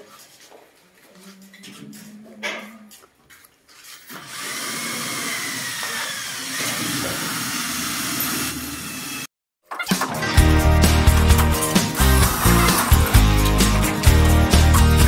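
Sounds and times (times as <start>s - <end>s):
power tool motor hissing: 4.1s - 9.3s, 11.6s - 14.1s.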